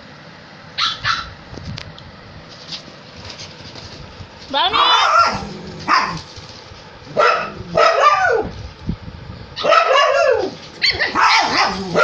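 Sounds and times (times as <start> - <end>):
dogs barking in yappy bursts: 0.8 - 1.4, 4.6 - 6.4, 7.0 - 8.6, 9.6 - 12.0.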